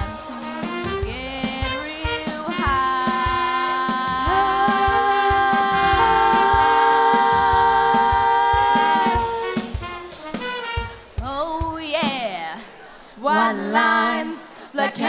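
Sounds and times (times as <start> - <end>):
women singing in harmony: 0.0 - 9.4, 13.2 - 15.0
drum beat: 0.0 - 12.4.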